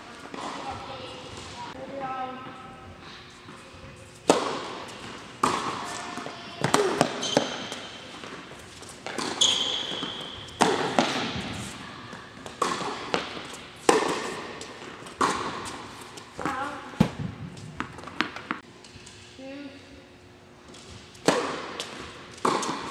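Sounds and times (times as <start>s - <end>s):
tennis ball bouncing: 4.2s - 18.6s, 20.7s - 22.9s
racket striking tennis ball: 4.3s - 18.6s, 21.2s - 22.9s
shoe squeak on court: 7.0s - 8.0s, 9.2s - 10.6s.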